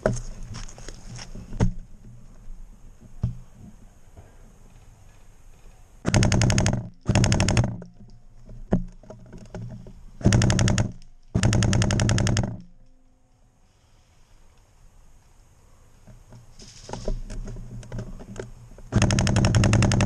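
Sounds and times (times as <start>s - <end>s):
airsoft gun firing bursts: 6.0s - 7.9s, 10.2s - 12.7s, 18.9s - 20.0s.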